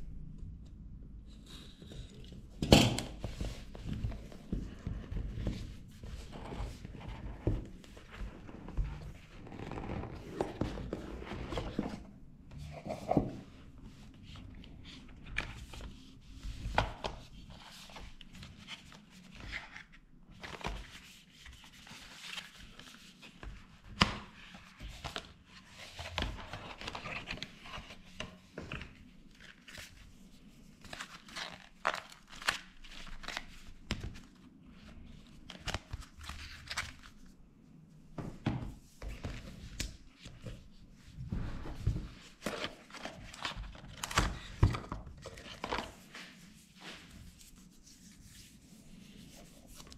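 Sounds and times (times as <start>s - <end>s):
cardboard and paper rustling: 39.0s - 47.6s.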